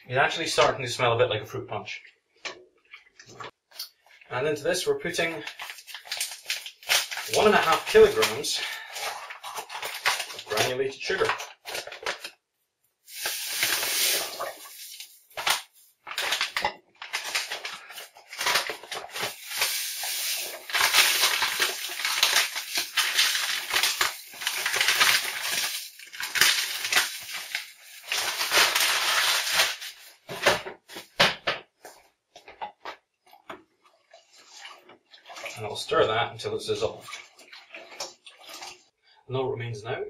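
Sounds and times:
paper bag crinkling: 0:05.2 - 0:12.4, 0:13.1 - 0:31.2
sugar pouring into a pot: 0:13.0 - 0:30.2.

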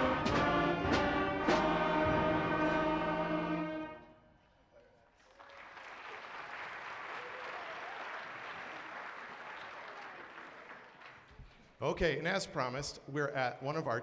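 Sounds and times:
audience applauding: 0:05.0 - 0:11.5.

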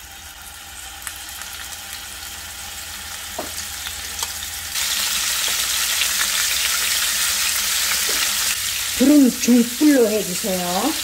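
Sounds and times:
fish sizzling in a pan: 0:00.0 - 0:11.0.

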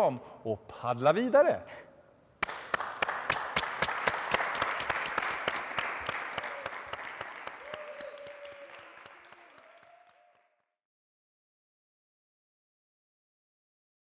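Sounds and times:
sharp close hand claps: 0:02.4 - 0:10.4
applause: 0:02.4 - 0:10.8.

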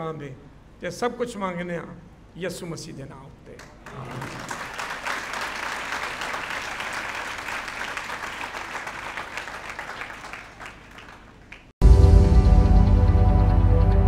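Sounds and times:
crowd applauding: 0:03.8 - 0:11.7.

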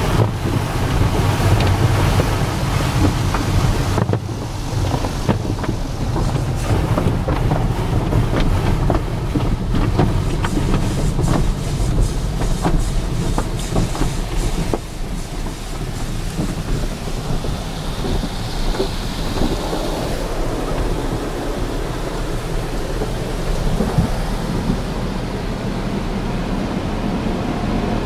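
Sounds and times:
cloth strips slapping car: 0:00.0 - 0:19.8
car wash low rumble: 0:00.0 - 0:28.0
water spraying on car: 0:00.0 - 0:28.0.

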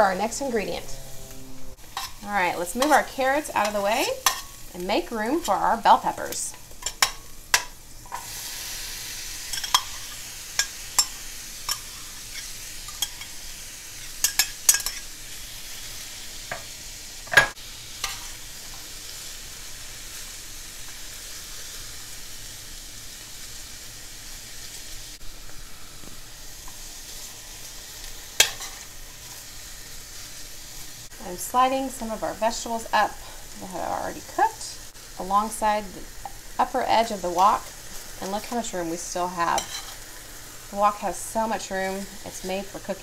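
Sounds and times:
metal spoon scraping a pan: 0:00.0 - 0:04.6, 0:09.5 - 0:13.3, 0:14.0 - 0:15.1, 0:39.4 - 0:40.1
vegetables sizzling in oil: 0:00.0 - 0:43.0.

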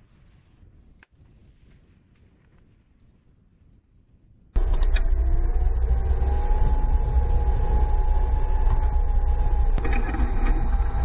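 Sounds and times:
diesel engine rumble: 0:04.6 - 0:11.0
engine whine: 0:04.6 - 0:11.0.

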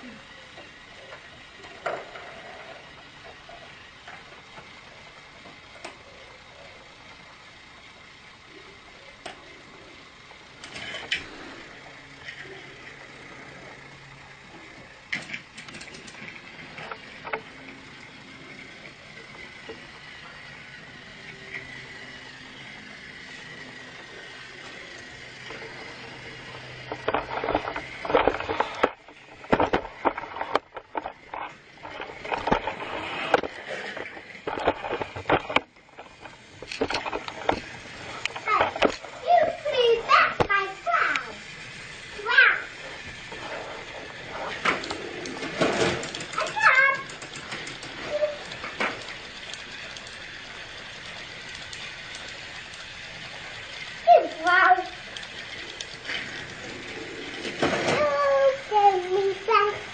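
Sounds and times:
motor clicks: 0:00.0 - 0:59.9
toy train motor humming: 0:00.0 - 0:59.9
plastic clattering and knocks: 0:26.9 - 0:37.7, 0:44.5 - 0:46.5.

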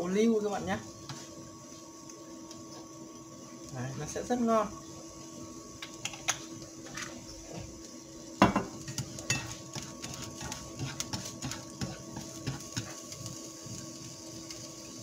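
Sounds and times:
sharp knock on frying pan: 0:08.4 - 0:08.8
light clicks and taps in pan: 0:08.4 - 0:13.4.

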